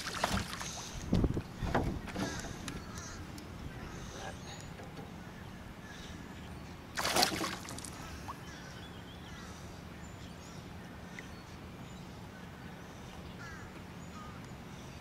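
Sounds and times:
fish splashing at surface: 7.0 - 8.0.

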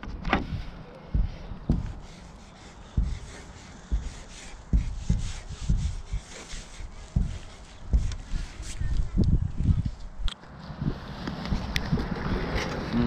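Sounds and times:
dull low knocks: 0.0 - 12.6
marker scratching on plastic: 1.2 - 10.1.

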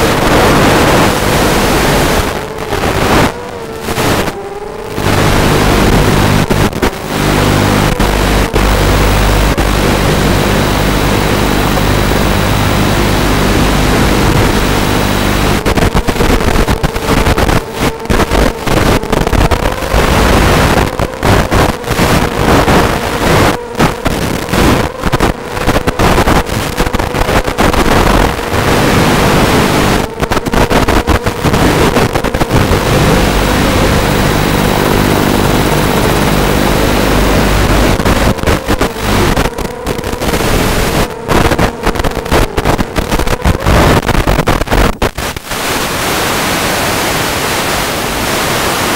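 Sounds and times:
choppy radio crackles: 0.0 - 48.9
electrical buzz and hiss: 0.0 - 48.9.

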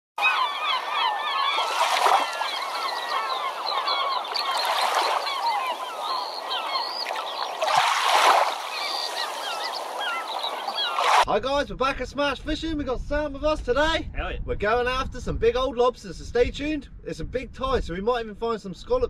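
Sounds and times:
flock of birds calling: 0.2 - 11.3
waves washing in: 1.4 - 11.3.

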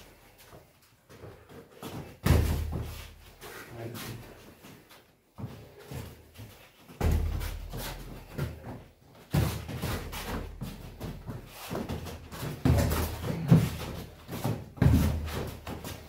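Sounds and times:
boxing gloves slapping and thudding: 1.8 - 3.2, 6.9 - 16.0.

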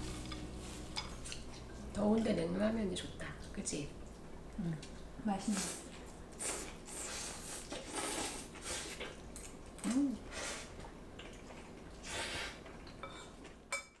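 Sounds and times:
person chewing and slurping: 5.6 - 13.5
person humming: 9.8 - 10.2.

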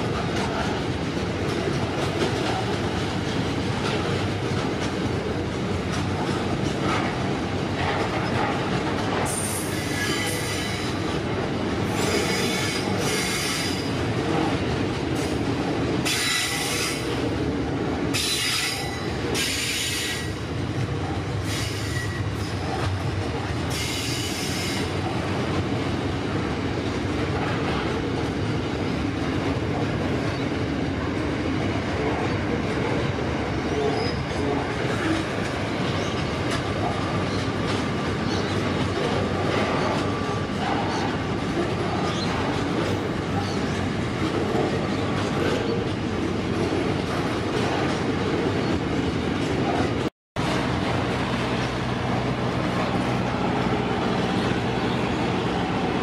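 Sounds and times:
freight train rumble and clatter: 0.0 - 56.0
train wheels squealing: 9.3 - 11.0, 11.9 - 13.9, 16.1 - 17.0, 18.2 - 20.4, 21.4 - 22.7, 23.7 - 24.9.

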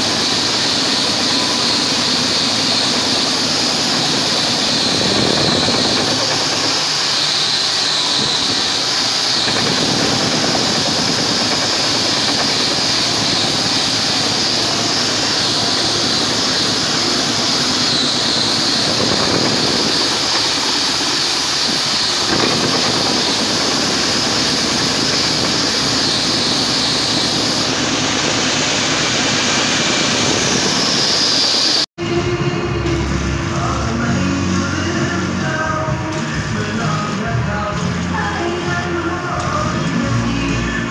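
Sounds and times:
milling machine cutting metal: 0.0 - 31.8.

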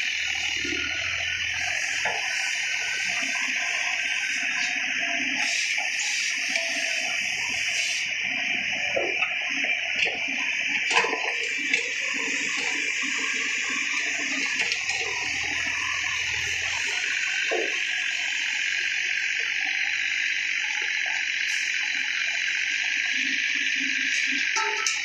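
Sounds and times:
excavator hissing: 0.0 - 9.3.

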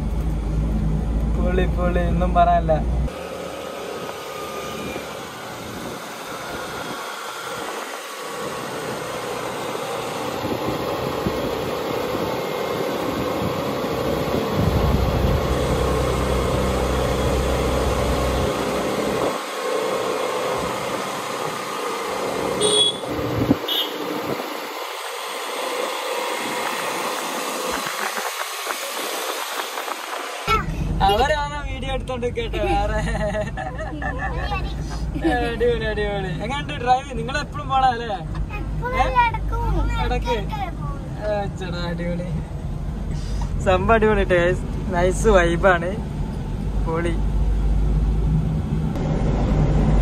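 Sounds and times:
traffic on wet road: 0.0 - 50.0
deep rumble: 46.0 - 50.0.

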